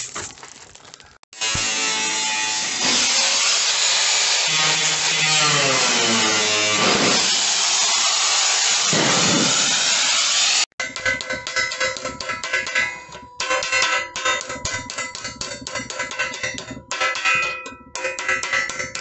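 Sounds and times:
angle grinder cutting steel: 0:01.4 - 0:14.9.

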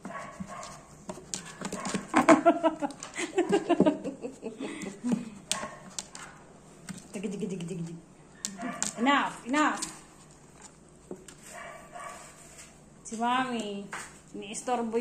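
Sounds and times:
woman laughing: 0:02.2 - 0:05.4.

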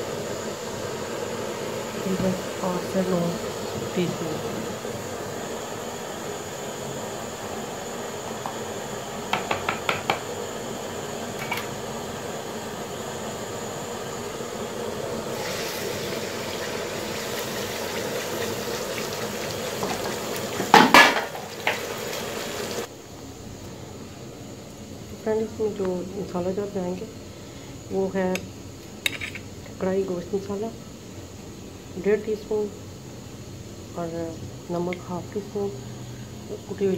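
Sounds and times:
steady low hiss: 0:00.0 - 0:08.4
pan and utensils clattering: 0:19.8 - 0:22.0.

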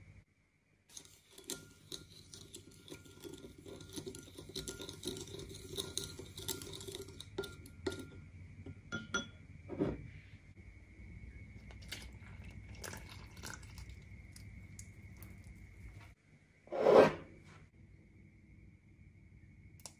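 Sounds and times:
spoon stirring in glass bowl: 0:00.9 - 0:09.4, 0:11.7 - 0:16.1.

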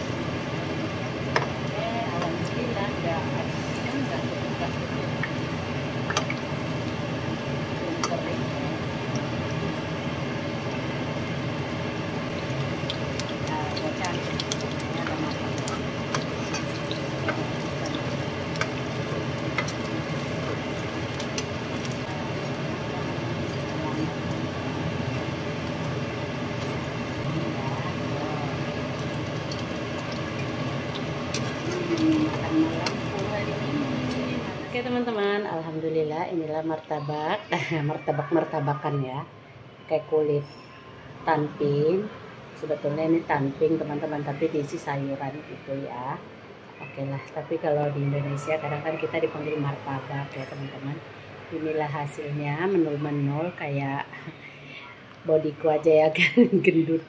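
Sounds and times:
food sizzling in oil: 0:00.0 - 0:35.1.

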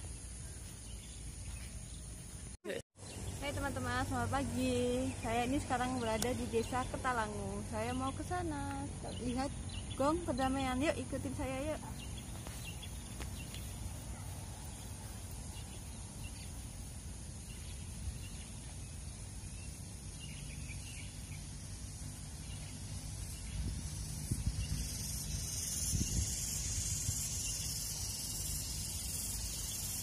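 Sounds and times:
wind rumble on microphone: 0:23.0 - 0:27.6.

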